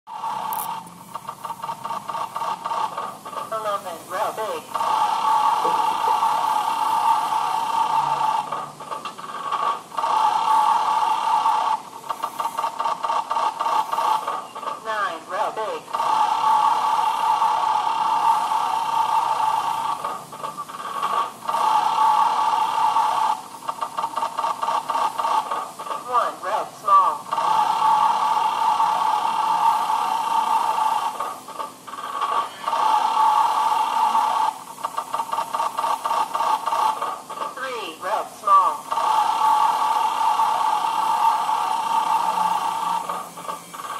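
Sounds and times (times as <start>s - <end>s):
rapid electronic ticking: 0.1s - 14.9s, 15.8s - 26.1s, 27.1s - 37.6s, 38.4s - 43.9s
quick electronic ticking: 0.2s - 3.7s, 31.6s - 37.6s.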